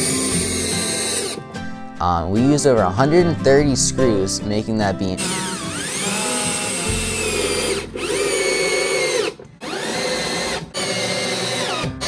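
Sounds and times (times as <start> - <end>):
cordless drill driving screws: 0.0 - 1.4, 5.2 - 12.0.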